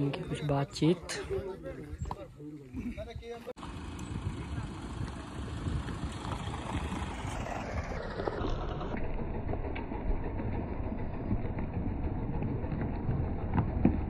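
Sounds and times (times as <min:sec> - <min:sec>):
engine low rumble: 0:03.2 - 0:14.0.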